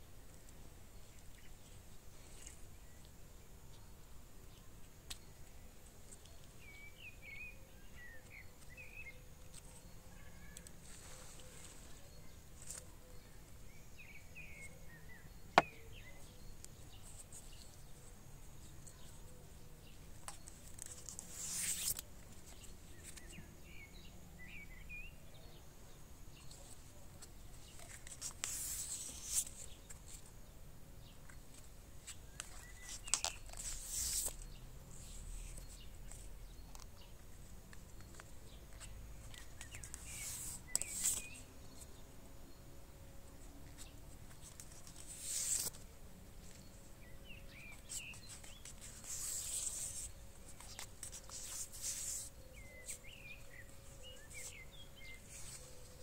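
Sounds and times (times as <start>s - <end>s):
birds chirping faintly: 0.0s - 56.0s
plastic tape rustling and crinkling: 20.2s - 23.4s, 26.5s - 30.4s, 31.5s - 41.8s, 43.7s - 46.7s, 47.5s - 56.0s.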